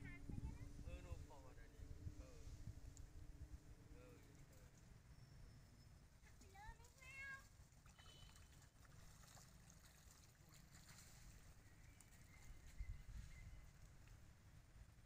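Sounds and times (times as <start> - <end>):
faint low rumble: 0.0 - 7.0
water splashing: 6.8 - 12.4.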